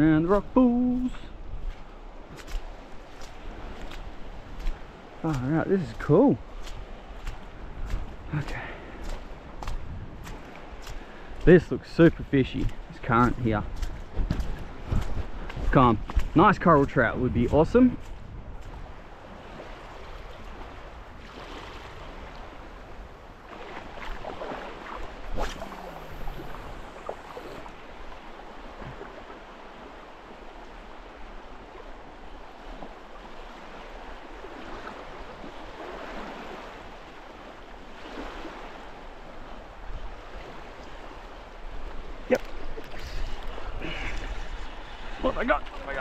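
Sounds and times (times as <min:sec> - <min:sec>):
wind rumble on microphone: 0:00.0 - 0:46.0
sea water surging over rocks: 0:19.4 - 0:46.0.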